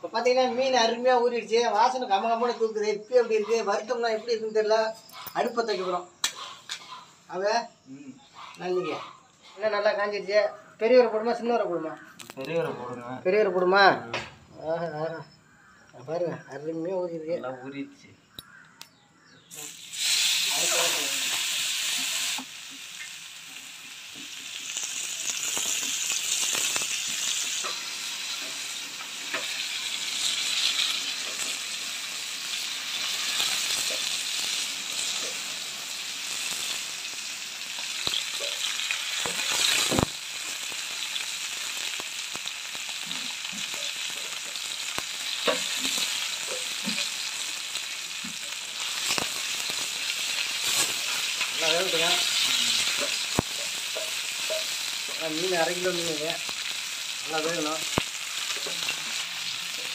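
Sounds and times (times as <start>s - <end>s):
oil popping and crackling: 11.9s - 12.7s, 19.5s - 59.9s
fish sizzling in hot oil: 19.5s - 59.9s.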